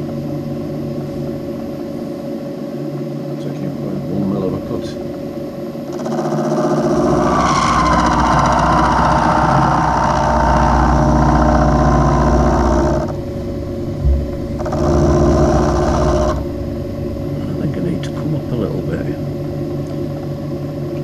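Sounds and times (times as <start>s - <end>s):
milling machine motor hum: 0.0s - 21.0s
end mill cutting metal: 5.9s - 20.9s
brief thump: 14.0s - 15.1s.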